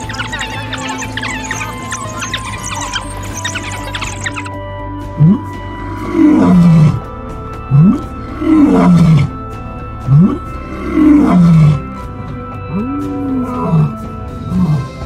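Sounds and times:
background music: 0.0 - 15.0
big cat roaring: 5.1 - 7.1, 7.7 - 9.4, 10.0 - 12.0, 12.7 - 15.0.

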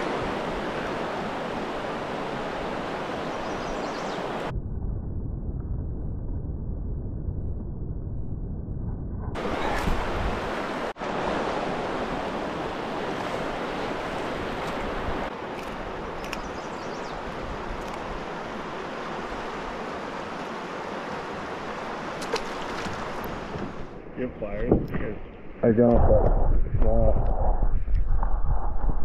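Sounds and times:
river current rushing: 0.0 - 4.5, 9.4 - 24.0
wind on microphone: 0.0 - 20.0, 22.7 - 29.0.

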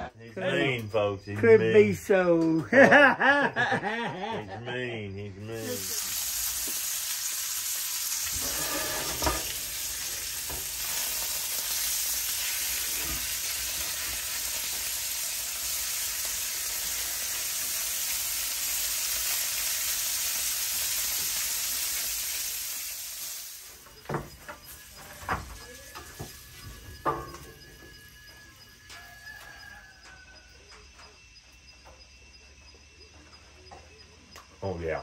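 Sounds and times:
bacon sizzling in a skillet: 5.6 - 27.7
utensil clinking and scraping: 8.3 - 11.8.

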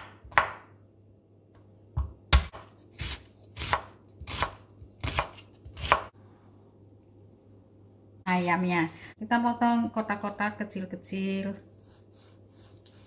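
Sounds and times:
knife chopping on wooden board: 0.0 - 0.7, 2.0 - 6.1.

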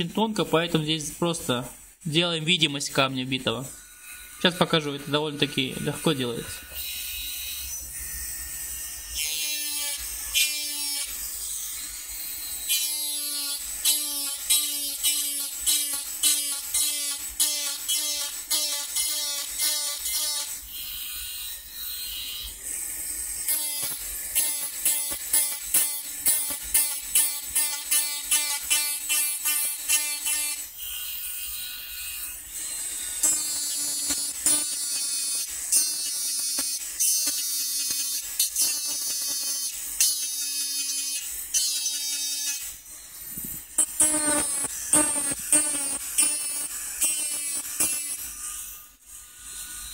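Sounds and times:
grinding buzz on metal: 3.7 - 14.8
rotary tool high hiss: 5.5 - 49.9.

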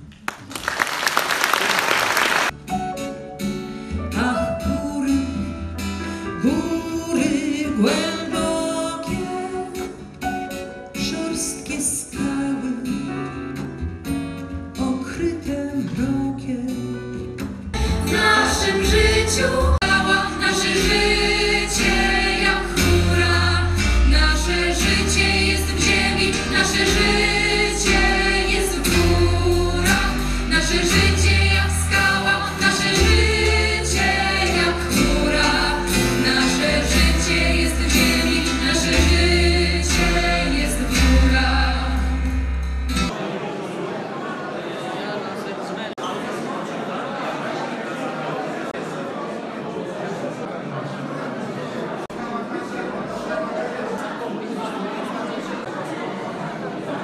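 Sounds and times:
applause: 0.0 - 2.6
light instrumental accompaniment: 2.6 - 6.2
woman singing: 4.1 - 10.0, 11.0 - 13.2, 14.8 - 17.2, 17.8 - 42.3
young singers: 6.4 - 13.1, 17.8 - 42.4.

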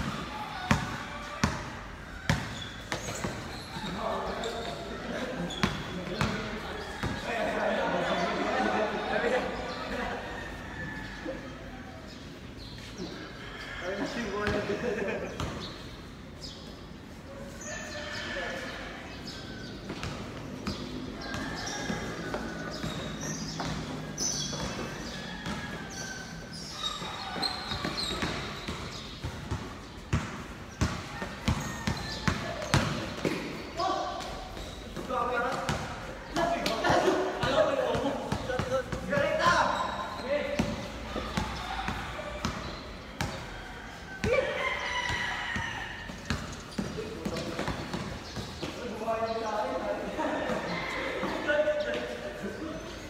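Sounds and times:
basketball bouncing on concrete: 0.0 - 1.7, 2.3 - 4.0, 5.5 - 7.4, 14.4 - 14.7, 19.9 - 26.0, 27.0 - 33.6, 34.2 - 39.7, 40.5 - 43.5, 46.0 - 49.0
sneakers squeaking: 0.0 - 53.0.

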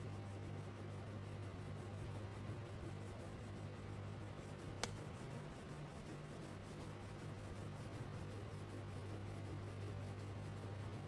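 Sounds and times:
crayon rubbing on paper: 0.0 - 11.0
steady low hum: 0.0 - 11.0
sharp click: 4.8 - 5.0.

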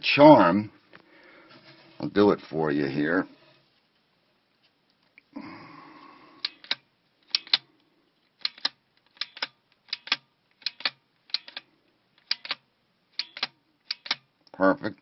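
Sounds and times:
score reel double clicks: 6.4 - 7.6, 8.4 - 11.6, 12.2 - 12.6, 13.2 - 14.3.

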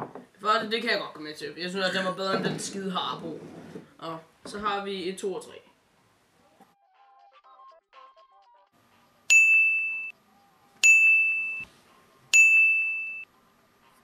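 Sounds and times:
electronic ding chimes: 9.3 - 10.1, 10.8 - 11.7, 12.4 - 13.2.

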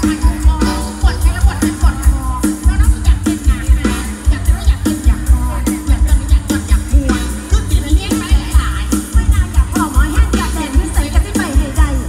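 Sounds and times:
heavy kick drum beat: 0.0 - 12.0
loud music over sound system: 0.0 - 12.0.

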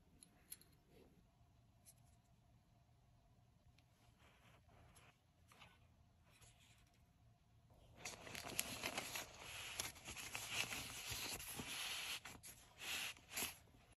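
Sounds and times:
nylon bag rustling and crinkling: 8.0 - 13.6.

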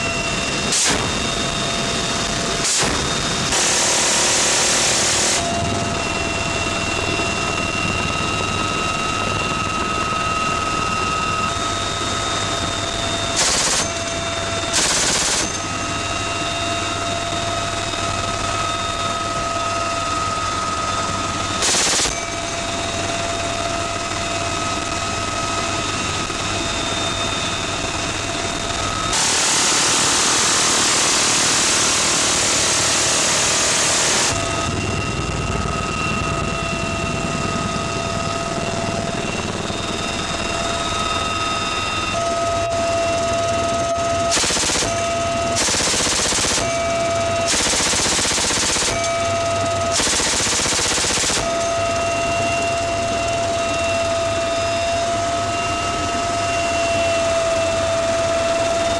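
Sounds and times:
helicopter turbine whine and rotor: 0.0 - 58.9
machine gun firing bursts: 2.7 - 5.4, 13.4 - 15.7, 21.6 - 22.2, 44.3 - 51.6.

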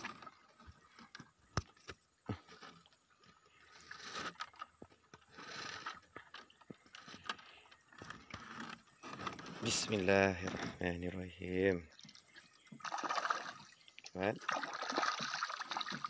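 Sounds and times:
netting scraping and rustling: 2.4 - 11.0.

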